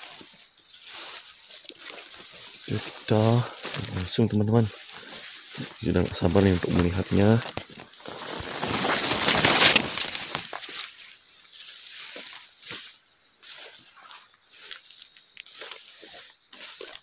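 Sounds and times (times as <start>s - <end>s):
grass rustling against phone: 0.0s - 17.0s
dry grass stems crackling: 0.8s - 11.1s.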